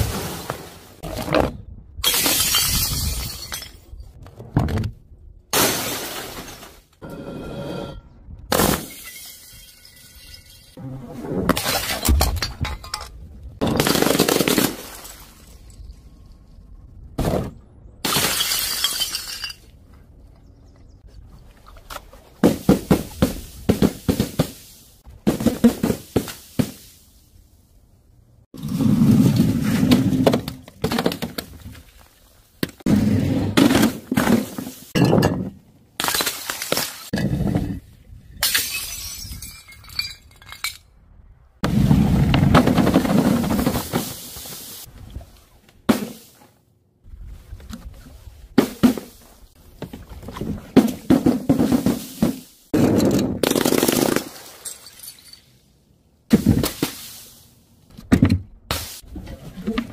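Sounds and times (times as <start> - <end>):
glass jars smashing: 2.0 - 4.0, 8.7 - 10.8, 18.0 - 19.7, 35.0 - 36.7, 38.4 - 40.9, 54.2 - 55.6.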